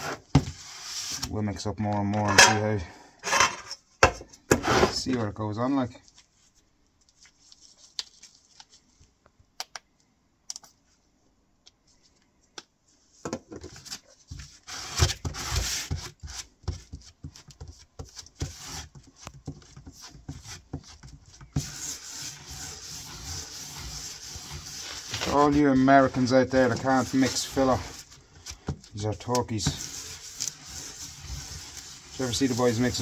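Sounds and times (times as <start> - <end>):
spreader scraping putty on cardboard: 14.4 - 33.0.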